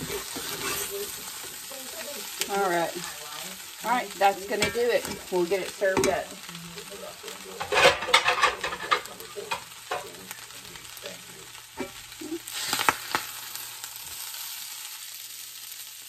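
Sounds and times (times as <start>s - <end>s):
metal spatula scraping skillet: 0.0s - 3.4s, 4.2s - 6.3s, 7.6s - 11.0s
food sizzling in pan: 0.0s - 16.0s.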